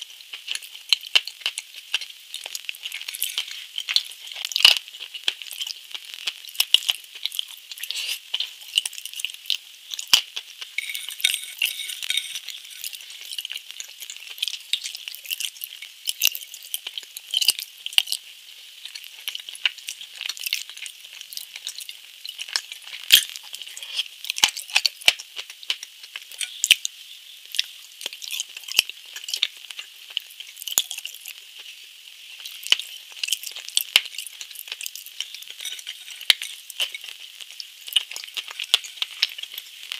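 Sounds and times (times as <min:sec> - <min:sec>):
chewing clicks and crackles: 0:00.2 - 0:26.9, 0:27.5 - 0:31.8, 0:32.4 - 0:39.9
fork clinking on glass plate: 0:10.8 - 0:13.0, 0:35.4 - 0:37.1.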